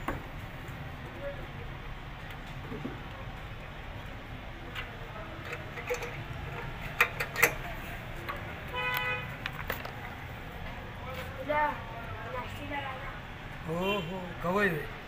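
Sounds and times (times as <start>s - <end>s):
metal tools clicking: 5.4s - 7.8s.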